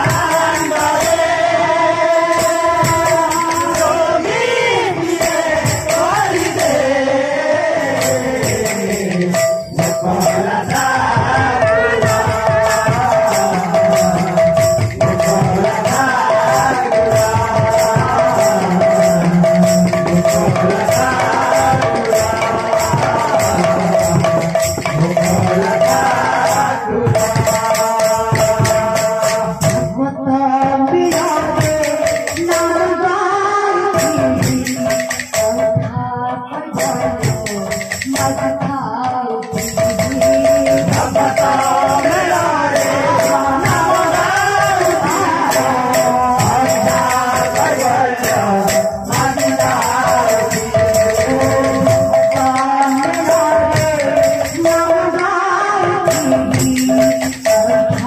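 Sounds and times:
amplified singing: 0:00.0 - 0:58.0
jingling metal hand percussion: 0:00.0 - 0:58.0
barrel drums: 0:34.0 - 0:58.0.

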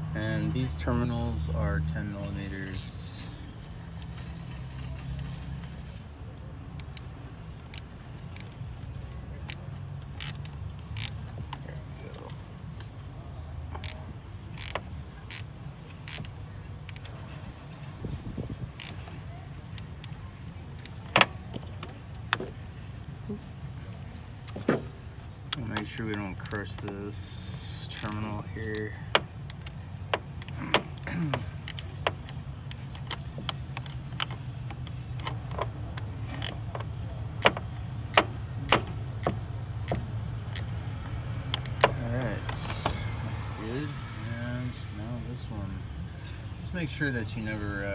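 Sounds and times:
ratchet wrench clicking: 0:02.7 - 0:03.0, 0:06.8 - 0:07.1, 0:10.2 - 0:11.2, 0:13.8 - 0:14.0, 0:14.6 - 0:17.2, 0:18.8 - 0:19.1, 0:25.6 - 0:26.9, 0:27.8 - 0:31.0, 0:31.6 - 0:35.6, 0:36.3 - 0:40.7, 0:41.5 - 0:42.0.

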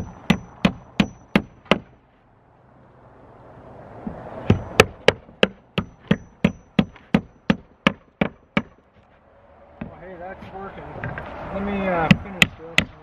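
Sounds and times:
hammer driving a nail into wood: 0:00.0 - 0:02.0, 0:04.1 - 0:08.8, 0:12.0 - 0:13.0.

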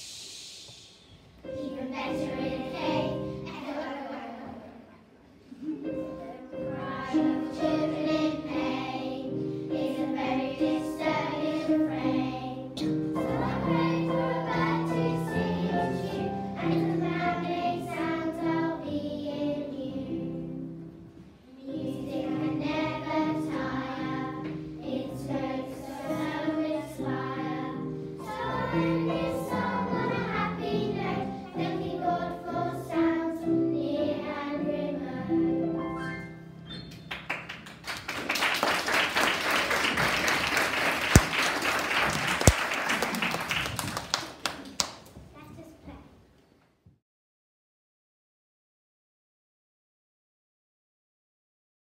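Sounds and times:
girls singing together: 0:01.4 - 0:04.9, 0:05.6 - 0:20.6, 0:21.7 - 0:35.7.

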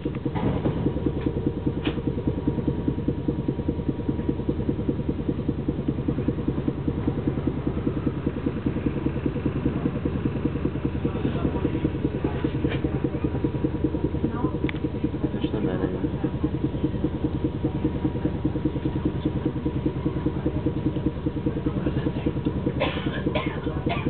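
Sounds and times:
faint steady whine: 0:00.0 - 0:24.0
tram machinery chugging: 0:00.0 - 0:24.0.

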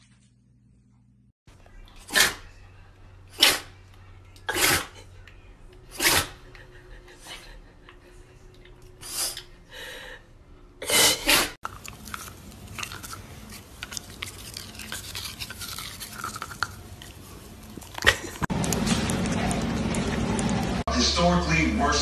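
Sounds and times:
dog teeth scraping plastic toothbrush: 0:11.6 - 0:19.6.

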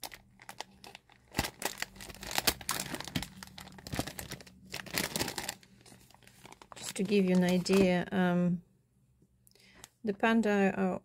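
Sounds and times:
plastic bag crinkling: 0:00.0 - 0:08.1.

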